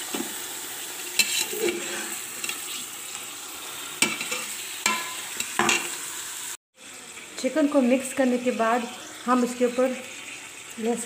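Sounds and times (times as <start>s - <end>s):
food sizzling in hot oil: 0.0s - 11.0s
spoon scraping metal pot: 1.0s - 3.2s, 4.0s - 6.0s.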